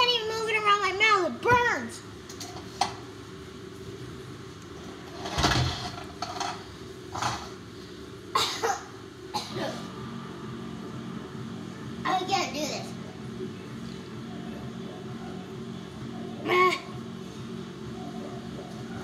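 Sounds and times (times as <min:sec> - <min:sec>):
faint background music: 0:00.0 - 0:19.0
child coughing: 0:08.4 - 0:09.9.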